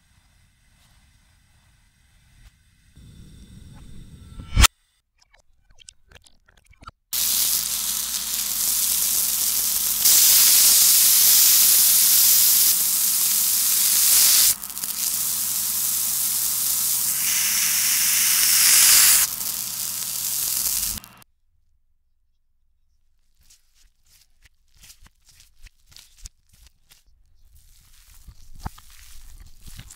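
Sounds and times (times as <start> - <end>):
reversed sizzling in a pan: 3.7 - 4.7, 7.2 - 21.2.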